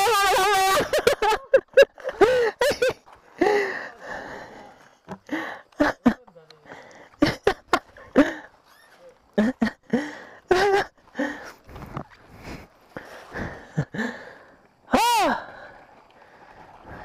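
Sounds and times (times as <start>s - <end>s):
people exclaiming and gasping: 0.0s - 1.2s, 13.2s - 15.8s.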